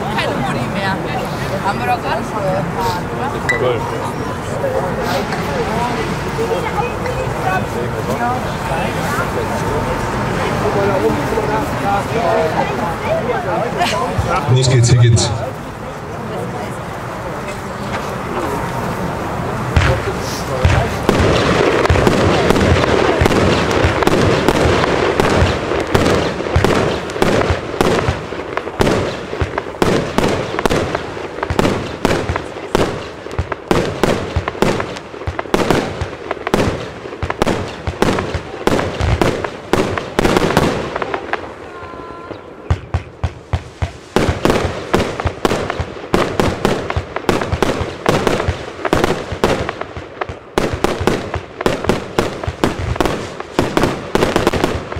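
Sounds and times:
fireworks firing shots and bursts: 19.5s - 54.9s.

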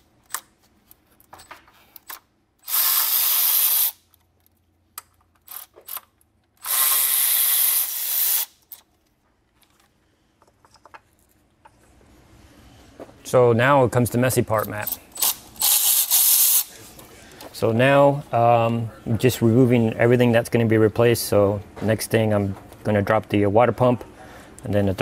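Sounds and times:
ratchet wrench clicking: 2.6s - 4.0s, 5.4s - 8.8s, 14.8s - 16.7s.

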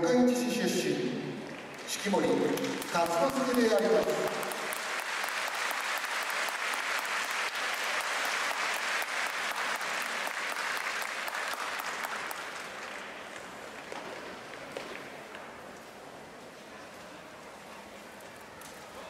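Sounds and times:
crowd applauding: 1.4s - 15.1s.

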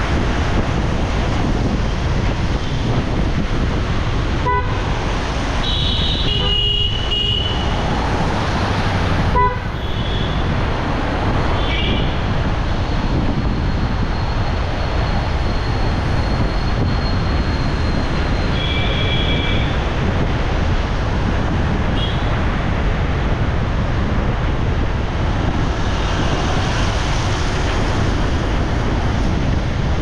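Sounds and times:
road traffic in rain: 0.0s - 30.0s
vehicle horns tooting: 4.4s - 4.9s, 5.6s - 7.8s, 9.3s - 10.4s.

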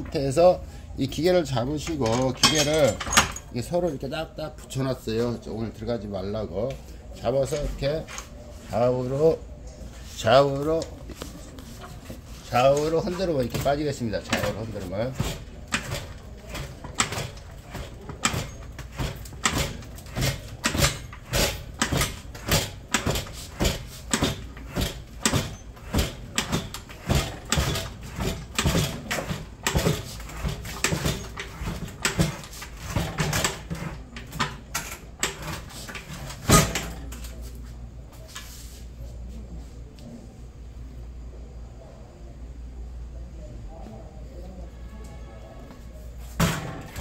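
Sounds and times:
metal knocking and clanking: 1.8s - 3.6s, 12.7s - 37.2s.

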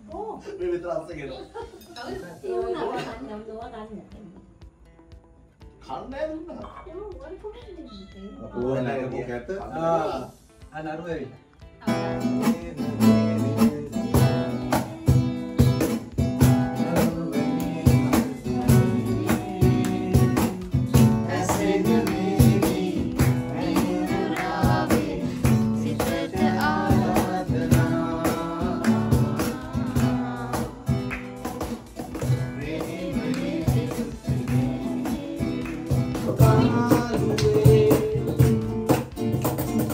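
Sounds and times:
acoustic guitar strumming: 8.2s - 39.9s
man singing: 12.2s - 31.6s, 32.2s - 38.8s.

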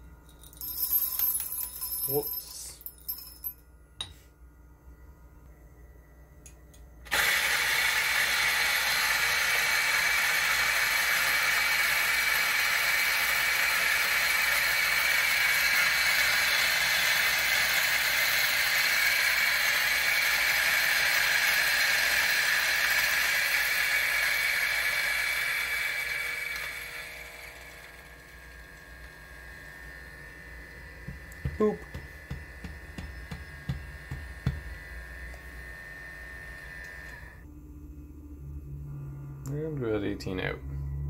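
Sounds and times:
coffee grinder whirring: 7.1s - 37.5s.

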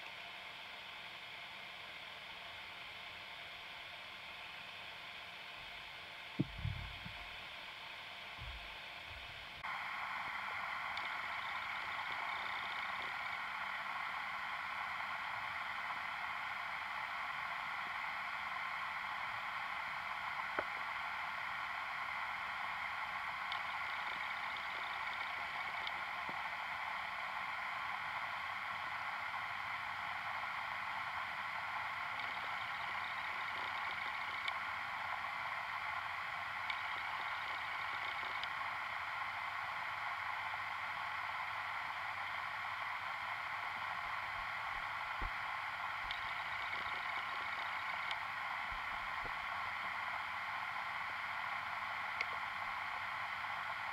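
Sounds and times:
faint clicks: 10.8s - 13.4s, 23.4s - 26.4s, 32.0s - 34.6s, 36.6s - 38.7s, 45.2s - 48.3s, 52.1s - 52.5s.

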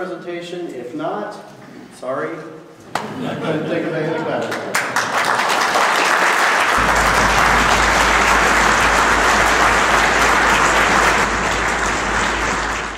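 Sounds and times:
crowd applauding: 4.4s - 12.9s.

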